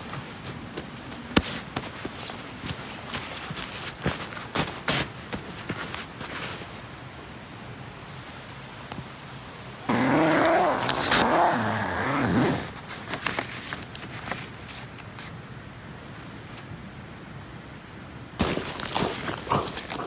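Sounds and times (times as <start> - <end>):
zipper being pulled open: 9.9 - 12.8
bag and paper rustling: 10.3 - 15.3, 18.4 - 20.0.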